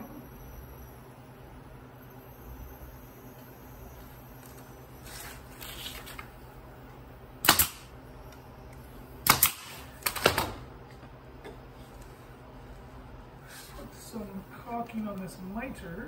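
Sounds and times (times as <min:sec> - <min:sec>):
pneumatic nailer shots: 0:07.4 - 0:07.9, 0:09.2 - 0:10.6.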